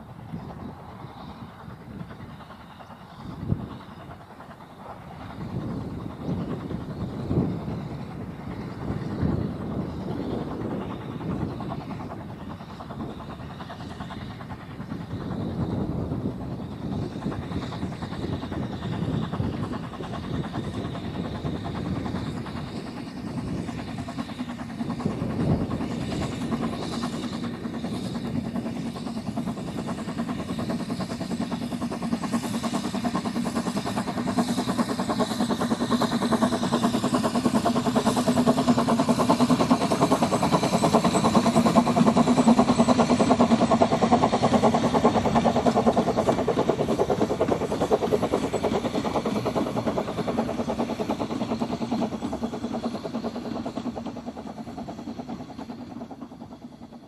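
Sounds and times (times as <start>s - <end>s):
steam locomotive exhaust beats: 0.0s - 57.0s.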